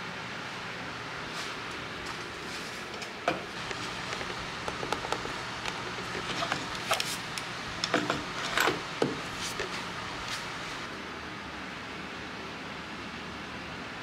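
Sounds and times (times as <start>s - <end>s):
steady low hum: 0.0s - 14.0s
objects clicking and knocking: 2.9s - 9.8s.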